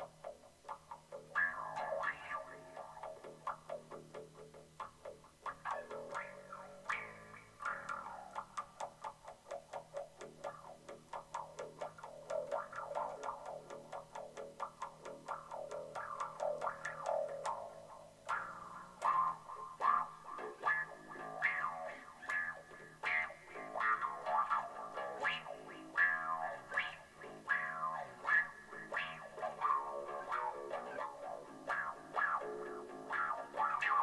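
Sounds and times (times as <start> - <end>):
electric bass guitar plucked: 0.0 - 34.0.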